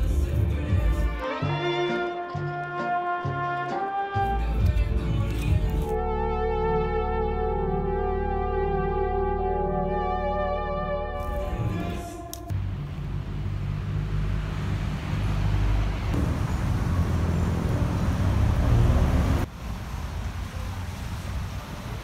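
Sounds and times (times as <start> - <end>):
cars passing with low rumble: 11.4 - 22.0.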